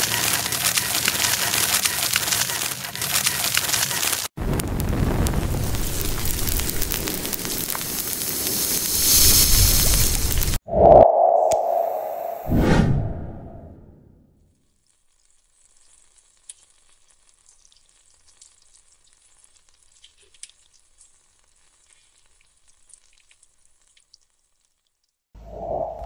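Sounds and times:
melting plastic sizzling and popping: 0:00.0 - 0:10.6, 0:14.5 - 0:25.3
loud rushing sound: 0:10.6 - 0:14.0.

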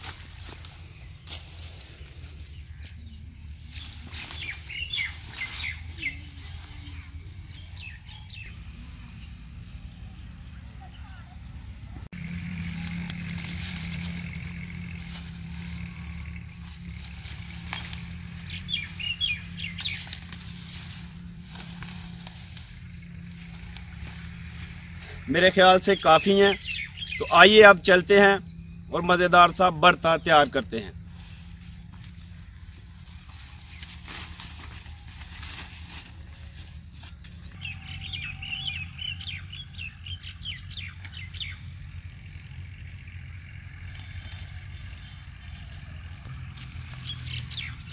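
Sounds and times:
plants rustling being pulled: 0:00.0 - 0:07.9, 0:12.2 - 0:25.3, 0:31.1 - 0:37.6, 0:43.8 - 0:47.9
leaves and stalks crackling: 0:00.0 - 0:09.6, 0:12.1 - 0:47.9
small birds chirping: 0:00.0 - 0:47.9
low rumble: 0:11.4 - 0:25.3
steady low hum: 0:11.7 - 0:25.4.

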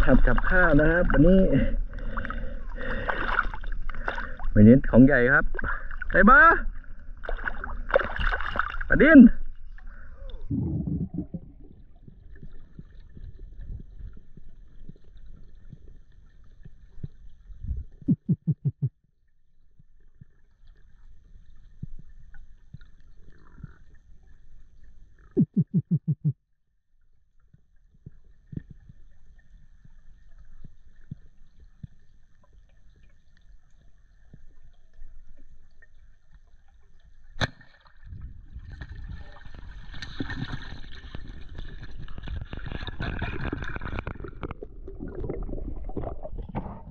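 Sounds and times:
muffled underwater rumble: 0:00.0 - 0:26.3, 0:38.0 - 0:46.9
water splashing: 0:05.5 - 0:09.3, 0:35.4 - 0:46.9.

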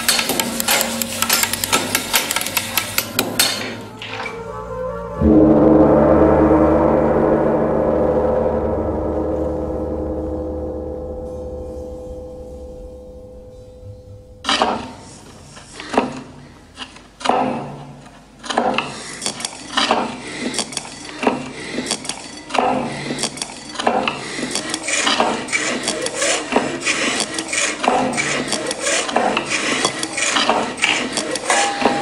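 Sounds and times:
low pulse: 0:05.1 - 0:14.8.

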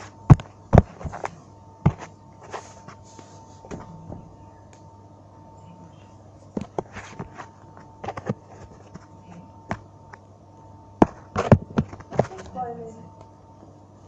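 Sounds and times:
faint steady hum: 0:00.0 - 0:14.0
phone handling knocks and rubbing: 0:00.3 - 0:02.6, 0:11.0 - 0:12.5.

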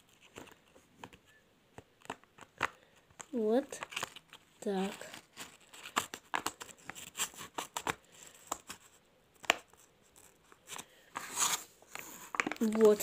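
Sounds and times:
plastic pouch crinkling: 0:02.0 - 0:08.8, 0:11.2 - 0:13.0.

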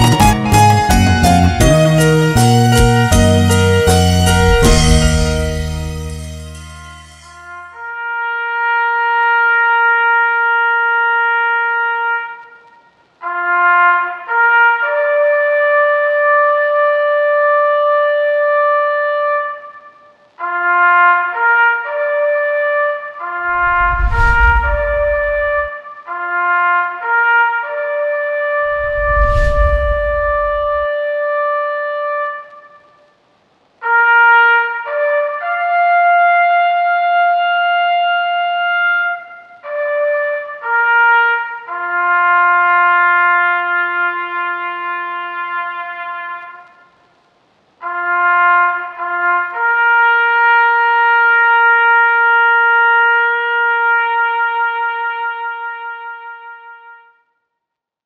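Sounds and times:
solo trumpet melody: 0:00.0 - 0:33.1, 0:33.8 - 0:47.1, 0:47.8 - 0:57.2
low thump: 0:04.3 - 0:06.4.

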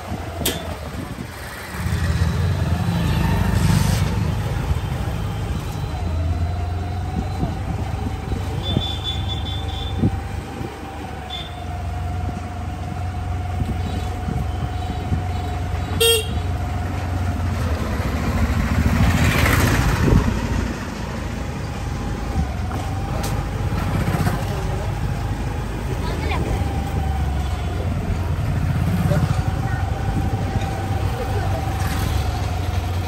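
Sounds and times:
motorbike engine hum: 0:00.0 - 0:33.0
motorbike passing close: 0:00.0 - 0:33.0
horn toot: 0:16.0 - 0:16.4.

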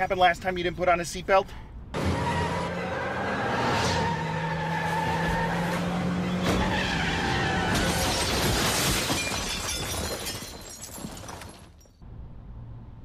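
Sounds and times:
van skidding: 0:01.9 - 0:08.6
glass shattering: 0:07.7 - 0:12.0.

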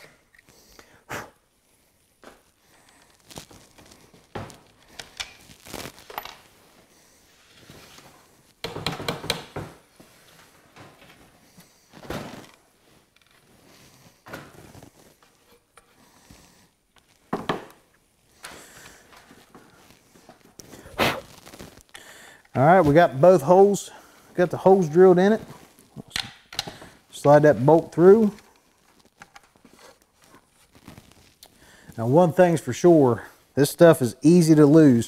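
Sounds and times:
knocks clicks and rustling: 0:08.6 - 0:09.8.

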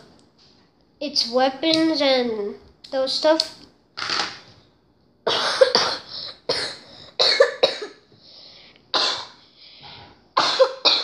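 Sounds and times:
boy coughing: 0:05.3 - 0:08.1, 0:09.0 - 0:09.4, 0:10.4 - 0:11.0.

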